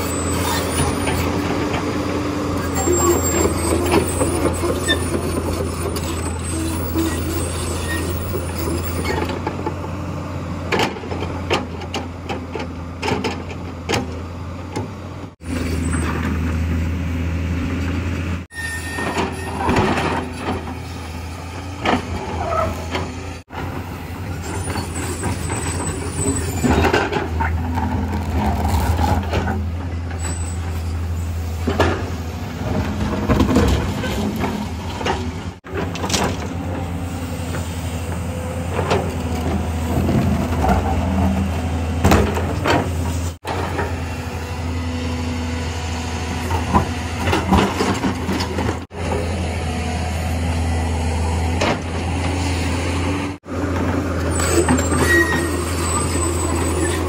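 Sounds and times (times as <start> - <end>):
excavator diesel engine running: 0.0 - 57.0
steel bucket scraping concrete: 54.2 - 57.0.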